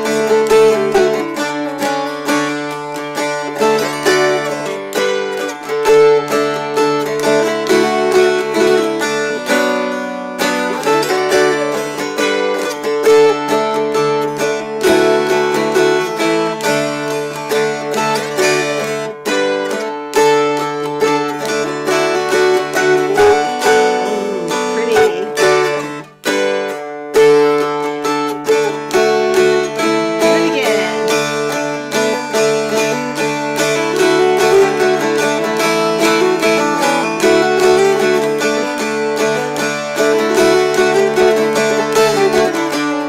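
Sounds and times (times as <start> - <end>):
dulcimers strummed: 0.0 - 43.0.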